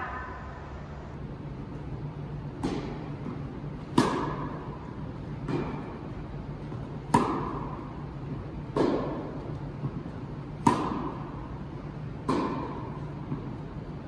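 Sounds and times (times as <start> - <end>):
low hum: 0.0 - 14.0
tennis racket hitting ball: 2.5 - 11.6, 12.2 - 13.6.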